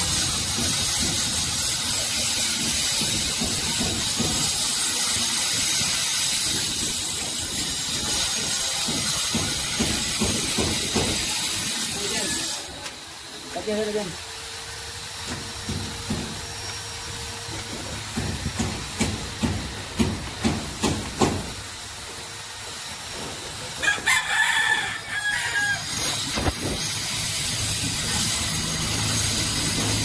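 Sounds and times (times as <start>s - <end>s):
sharp knocks: 8.8s - 11.3s, 18.1s - 21.6s
rooster crowing: 23.8s - 26.2s.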